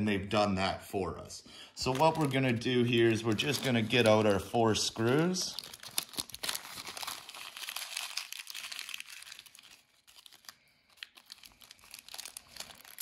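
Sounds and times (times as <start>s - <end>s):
plastic bag crinkling: 1.8s - 13.0s.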